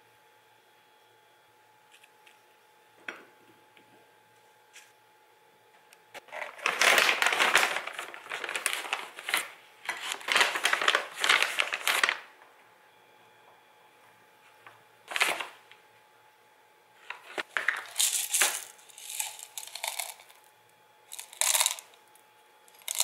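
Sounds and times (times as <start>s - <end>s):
plastic bag crinkling and rustling: 6.2s - 12.3s, 15.1s - 15.6s, 17.0s - 20.4s, 21.1s - 22.0s, 22.8s - 23.0s.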